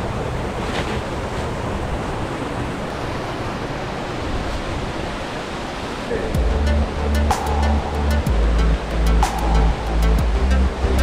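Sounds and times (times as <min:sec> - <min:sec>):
waterfall rushing: 0:01.2 - 0:11.0.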